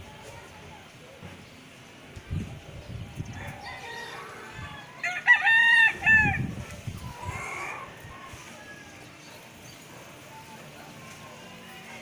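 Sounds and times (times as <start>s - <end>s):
rooster crowing: 3.4s - 6.5s.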